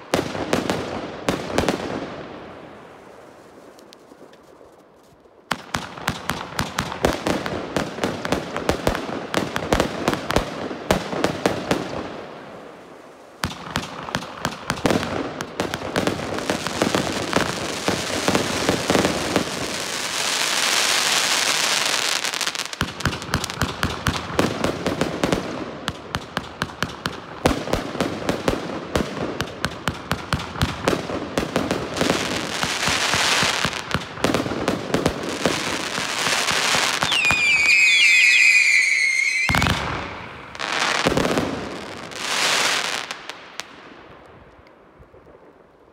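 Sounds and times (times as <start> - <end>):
firework launch pops and bursts: 22.8 - 44.3.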